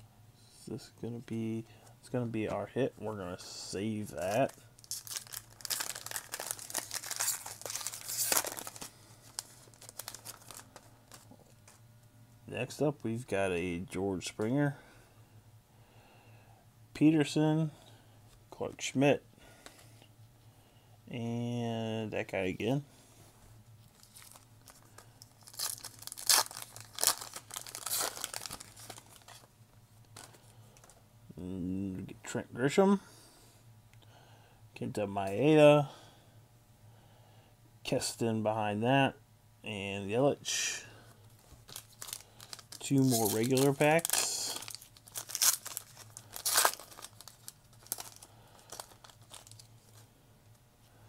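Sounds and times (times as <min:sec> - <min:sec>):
cards being handled: 0:04.0 - 0:11.8, 0:23.9 - 0:29.5, 0:41.4 - 0:50.0
foil wrapper crinkling and tearing: 0:04.1 - 0:11.8, 0:23.9 - 0:29.5, 0:41.4 - 0:50.0.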